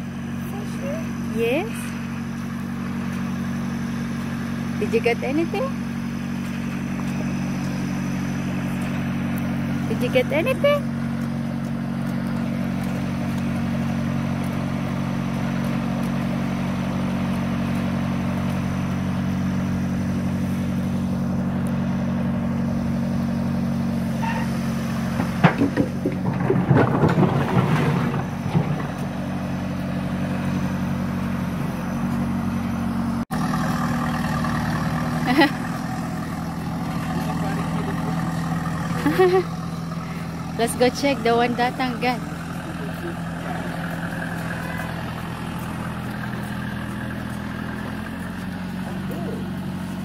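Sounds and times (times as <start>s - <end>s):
knocks and rattles: 25.1s - 29.3s
motor humming: 33.4s - 50.0s.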